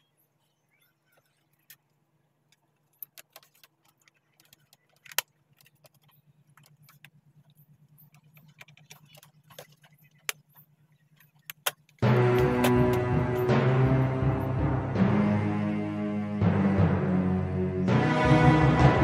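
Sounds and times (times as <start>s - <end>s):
clicks and taps of handling probes: 2.5s - 13.1s.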